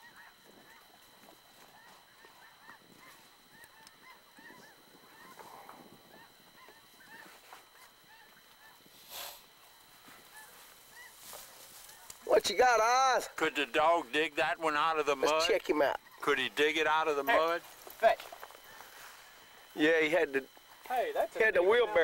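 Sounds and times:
distant geese honking: 0:00.0 - 0:22.0.

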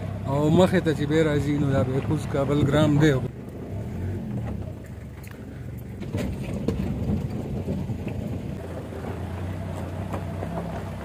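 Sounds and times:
tyres on gravel: 0:00.0 - 0:11.0
vehicle engine running: 0:00.0 - 0:11.0
knocks and rattles: 0:04.3 - 0:11.0.

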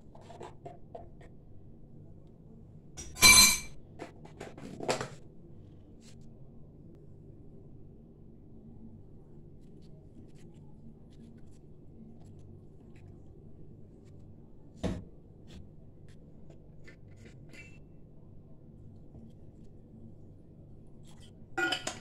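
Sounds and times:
low steady hum: 0:00.0 - 0:22.0.

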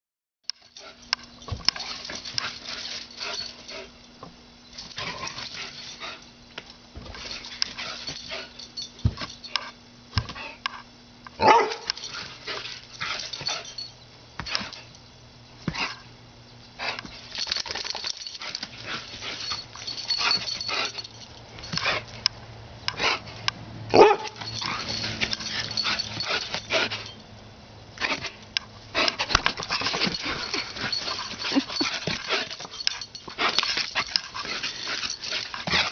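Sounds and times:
dog barking: 0:11.4 - 0:11.9, 0:23.9 - 0:24.4.

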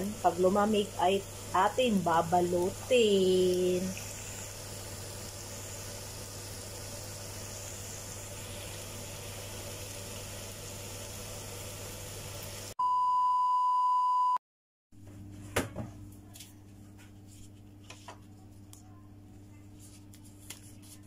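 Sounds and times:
test tone beep: 0:12.8 - 0:14.4.

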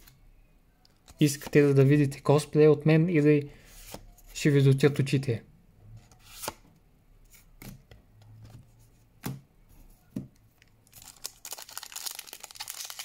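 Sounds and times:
foil wrapper crinkling: 0:10.9 - 0:13.0.

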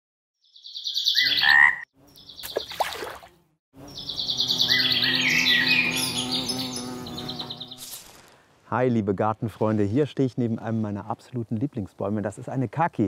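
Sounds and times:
high trilling animal calls: 0:00.9 - 0:02.5, 0:03.8 - 0:07.7.

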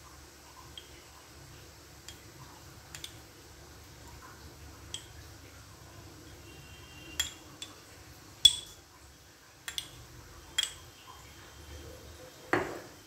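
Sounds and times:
spoon clinking against dishes: 0:02.9 - 0:03.2, 0:07.1 - 0:08.8, 0:09.6 - 0:10.9.

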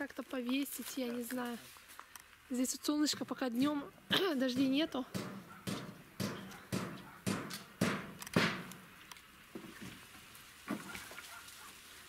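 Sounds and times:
footsteps: 0:03.6 - 0:08.9.

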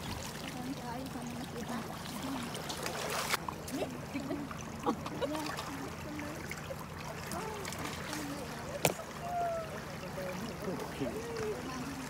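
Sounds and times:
water splashing and trickling: 0:00.0 - 0:12.0
faint voices talking: 0:03.6 - 0:12.0.

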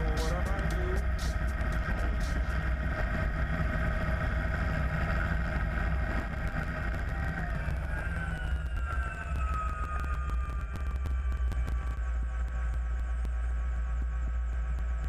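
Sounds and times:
helicopter rotor beat: 0:00.0 - 0:02.9.

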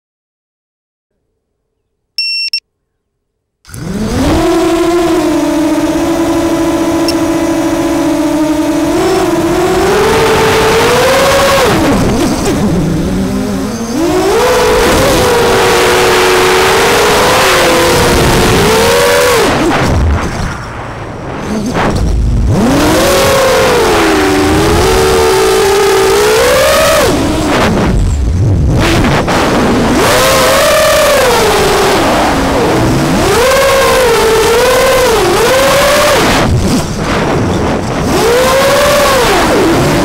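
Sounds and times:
short electronic beep: 0:02.2 - 0:02.6
drone motors whining: 0:03.7 - 0:40.0.

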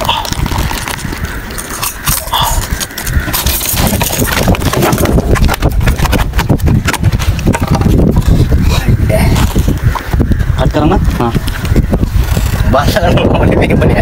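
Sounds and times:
fish flapping on wooden planks: 0:00.0 - 0:10.6.

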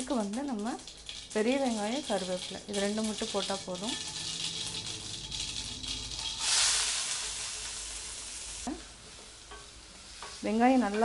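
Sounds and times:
oil sizzling in a pan: 0:00.0 - 0:11.0.

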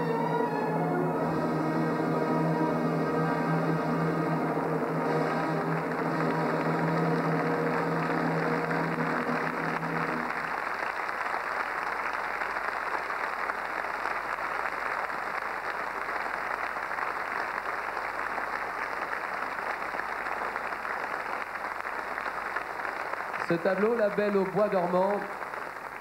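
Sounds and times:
music: 0:00.0 - 0:10.6
audience applauding: 0:00.0 - 0:26.0.

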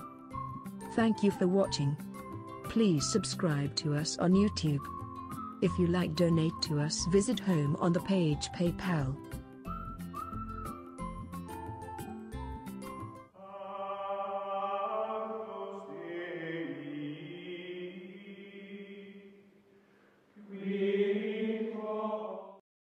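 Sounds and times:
choral chanting on held chords: 0:13.4 - 0:19.4, 0:20.4 - 0:22.6.

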